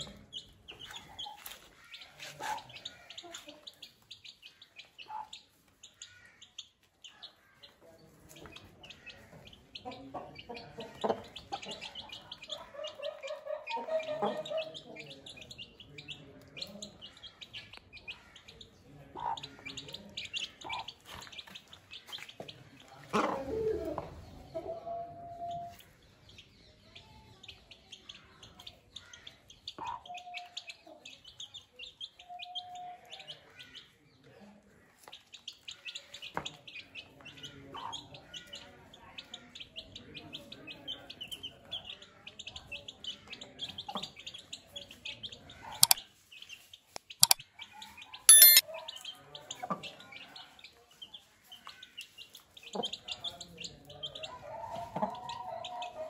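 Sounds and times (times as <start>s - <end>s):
chicks peeping: 0.0s - 24.8s, 25.5s - 34.0s, 34.9s - 56.0s
sharp clicks: 48.3s - 48.6s.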